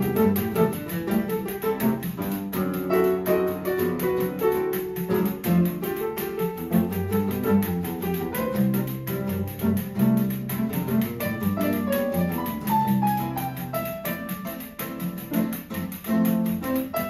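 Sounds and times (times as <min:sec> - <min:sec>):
pandeiro jingles ticking: 0:00.0 - 0:17.0
piano melody: 0:00.0 - 0:17.0
seven-string guitar: 0:00.0 - 0:17.0.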